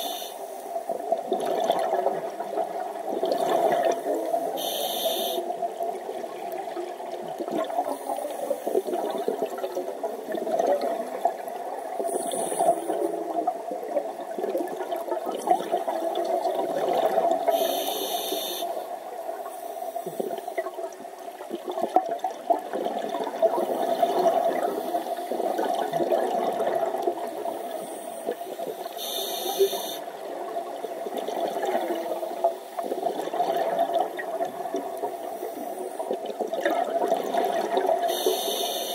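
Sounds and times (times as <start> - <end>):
regulator hiss: 0.0 - 0.6, 4.4 - 5.6, 17.5 - 18.9, 27.8 - 30.1, 38.1 - 38.9
underwater bubbling: 0.0 - 38.9.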